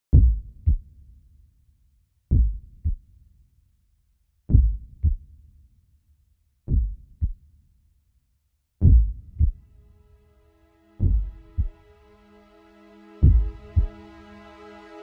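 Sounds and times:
heartbeat double thumps: 0.1 - 0.8, 2.3 - 3.0, 4.5 - 5.2, 6.7 - 7.4, 8.8 - 9.6, 11.0 - 11.7, 13.2 - 13.9.

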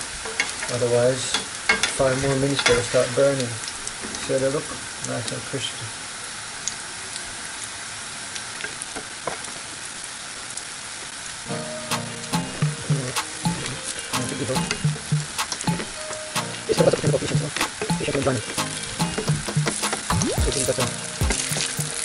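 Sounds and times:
food sizzling in oil: 11.2 - 22.0
background music with beat: 11.5 - 22.0.

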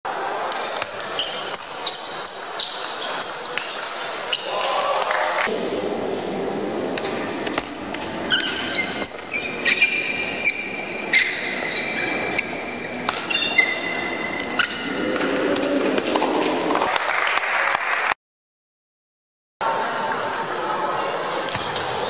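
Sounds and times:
shoes squeaking on wooden floor: 1.1 - 4.2.

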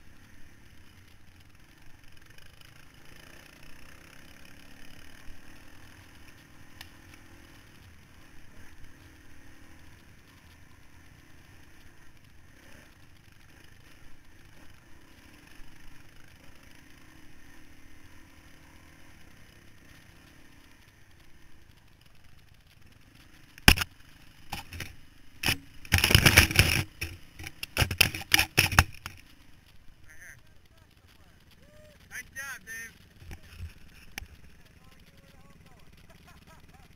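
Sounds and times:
dirt bike engine: 0.0 - 36.9
branches striking camera: 23.6 - 29.2.

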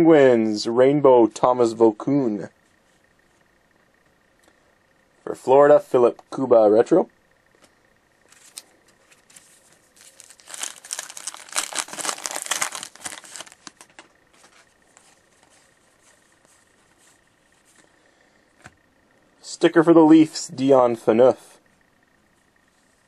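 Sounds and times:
cards rustling and ticking: 8.2 - 17.9
wrapper tearing and crinkling: 10.0 - 14.1.

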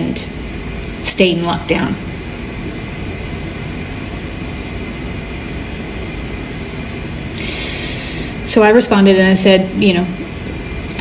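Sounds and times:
background hiss: 0.0 - 11.0
breath drawn in: 7.3 - 8.4.

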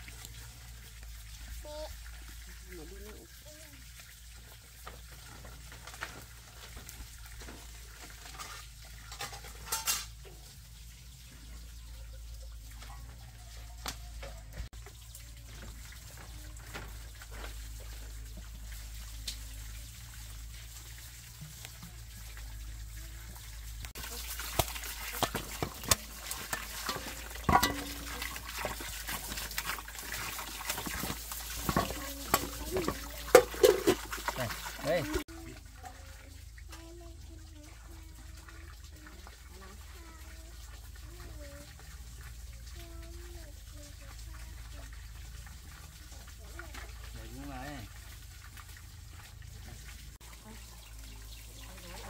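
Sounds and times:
water splashing and sloshing: 0.0 - 52.0
pot and utensils clinking: 7.4 - 10.6, 23.9 - 35.3.

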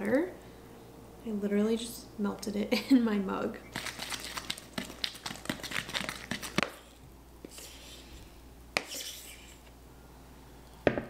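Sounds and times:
batter scraping in bowl: 8.8 - 9.6.

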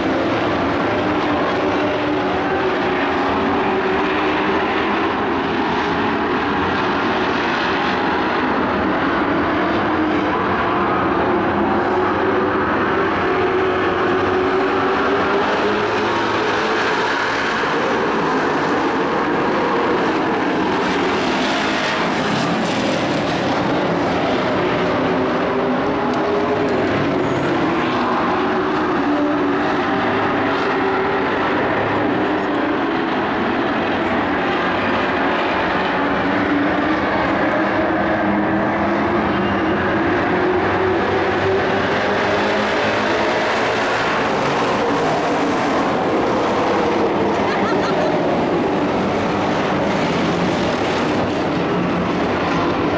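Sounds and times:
race truck engines droning: 0.0 - 52.9.

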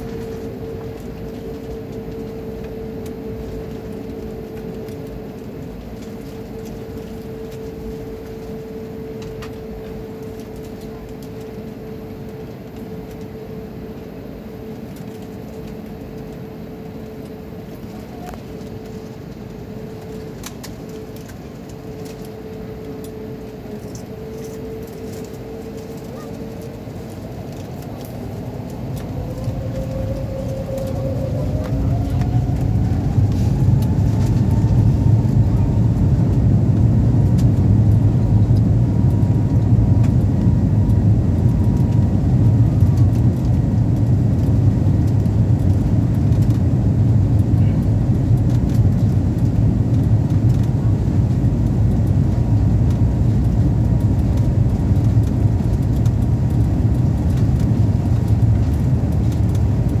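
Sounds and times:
jet engines spooling up: 11.4 - 47.1.

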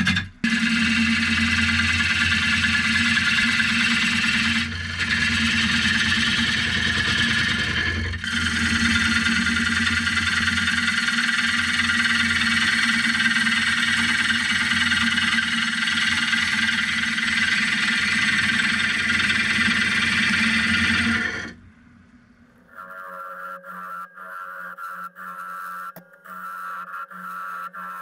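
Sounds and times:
lathe motor hum: 0.0 - 21.6.

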